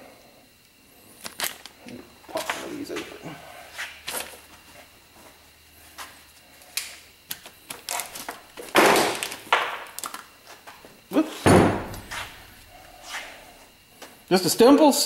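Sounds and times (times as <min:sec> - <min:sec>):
scuffs on workbench: 0:11.8 - 0:14.2.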